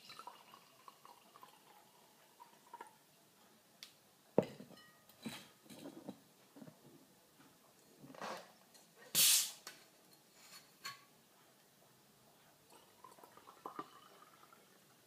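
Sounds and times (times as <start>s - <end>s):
water pouring into glass: 0.0s - 2.9s, 12.7s - 15.0s
bottle opening gas hiss: 9.2s - 9.6s.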